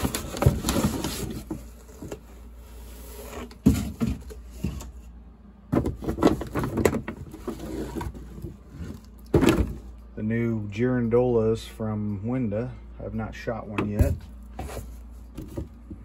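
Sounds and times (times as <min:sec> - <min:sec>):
knocks and rustles of boxes: 0:00.0 - 0:02.4, 0:03.3 - 0:05.0, 0:05.7 - 0:09.9, 0:13.8 - 0:16.0.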